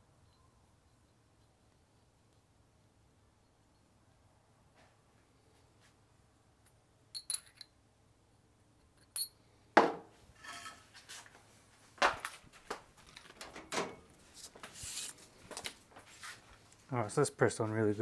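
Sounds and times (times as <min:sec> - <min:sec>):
metal parts clinking: 0:07.1 - 0:07.8, 0:08.9 - 0:09.4.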